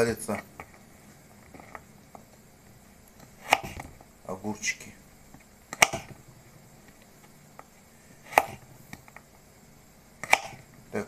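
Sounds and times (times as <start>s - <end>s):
knife chopping on cutting board: 3.2s - 3.9s, 5.8s - 6.2s, 8.3s - 8.6s, 10.2s - 10.6s.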